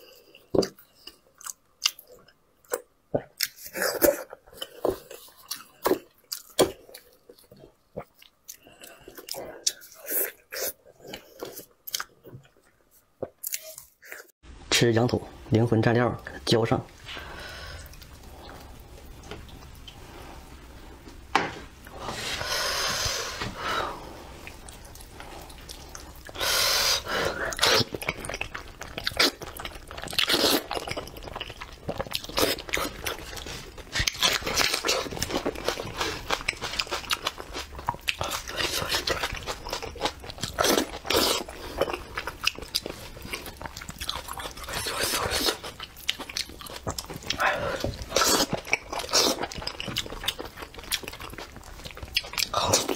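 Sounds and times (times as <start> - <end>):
smacking chewing and crunching: 0.1 - 14.3, 24.3 - 26.4, 27.0 - 52.9.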